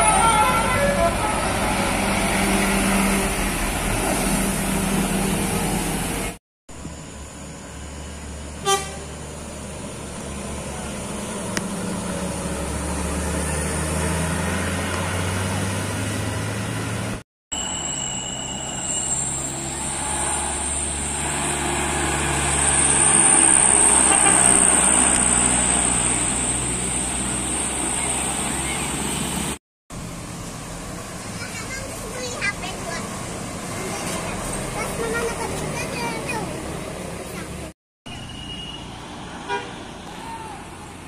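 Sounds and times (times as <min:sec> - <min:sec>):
diesel buses and truck passing: 0:00.0 - 0:41.0
horn toot: 0:08.6 - 0:09.2, 0:23.8 - 0:24.8, 0:39.5 - 0:39.8.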